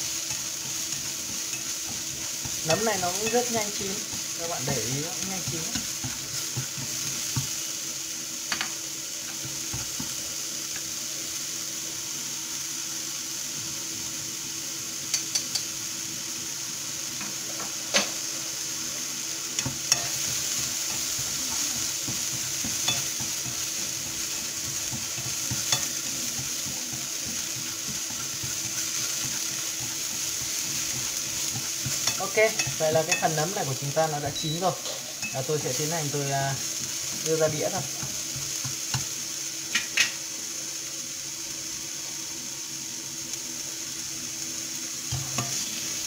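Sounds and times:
mushrooms sizzling in frying pan: 0.0 - 46.0.

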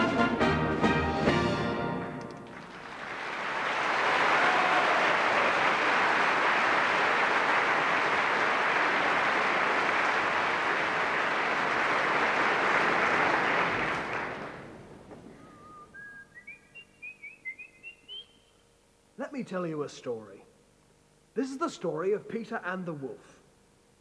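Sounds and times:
audience applauding: 2.3 - 15.7.

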